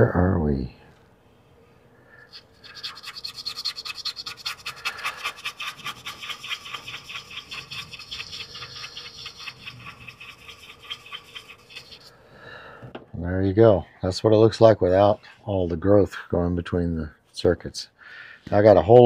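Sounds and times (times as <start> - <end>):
stiff brush scrubbing circuit board: 2.3 - 12.1.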